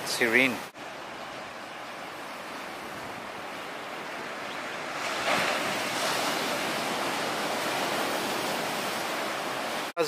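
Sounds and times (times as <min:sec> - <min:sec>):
waves breaking on beach: 0:00.0 - 0:10.0.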